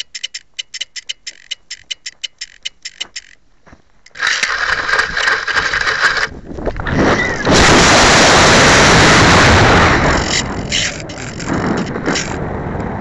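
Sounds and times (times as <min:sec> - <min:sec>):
wind rush on microphone: 0:04.5 - 0:13.0
camera handling noise: 0:10.2 - 0:12.4.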